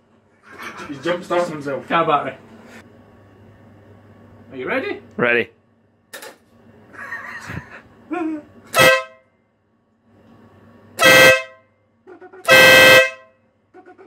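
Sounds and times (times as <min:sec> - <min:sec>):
electric air horn blasts: 0:08.7 - 0:09.3, 0:11.0 - 0:11.7, 0:12.4 - 0:13.4.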